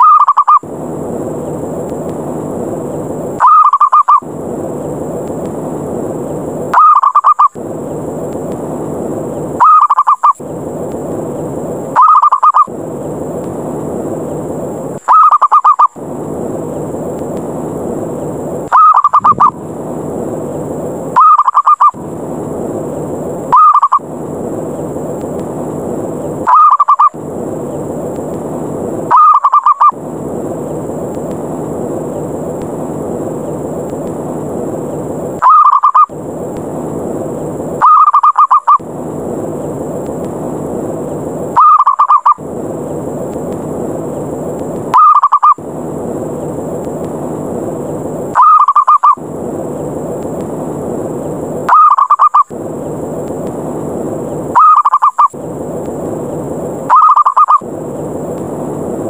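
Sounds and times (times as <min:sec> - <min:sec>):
steady hiss: 0:00.0 - 0:59.0
dove rolling coos: 0:06.8 - 0:07.5, 0:12.0 - 0:12.7, 0:18.7 - 0:19.6, 0:21.2 - 0:22.0, 0:26.5 - 0:27.2, 0:29.1 - 0:30.0, 0:35.4 - 0:36.1, 0:37.8 - 0:38.8, 0:41.6 - 0:42.4, 0:48.4 - 0:49.2, 0:51.7 - 0:52.5, 0:54.6 - 0:55.3, 0:56.9 - 0:57.6.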